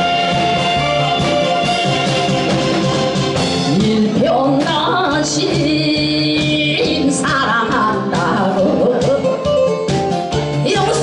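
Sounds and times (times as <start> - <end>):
loud backing music: 0.0 - 11.0
woman singing into a microphone: 3.7 - 9.4, 10.6 - 11.0.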